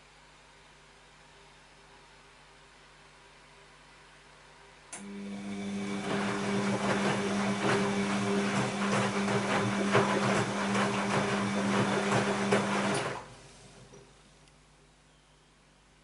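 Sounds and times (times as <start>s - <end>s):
washing machine motor hum: 4.9s - 14.1s
water and laundry sloshing: 6.0s - 13.2s.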